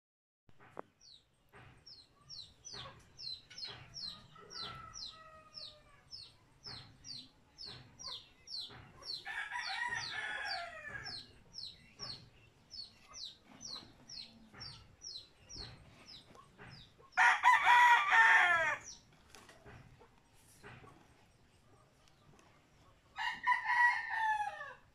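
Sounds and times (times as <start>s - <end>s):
roosters crowing: 4.3s - 6.0s, 9.1s - 11.3s, 17.1s - 19.0s, 23.2s - 24.9s.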